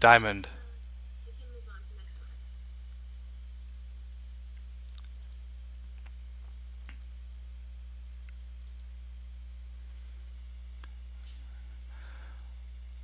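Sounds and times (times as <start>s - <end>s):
low electrical hum: 0.0s - 13.0s
faint computer mouse clicks: 4.9s - 5.4s, 8.3s - 8.9s.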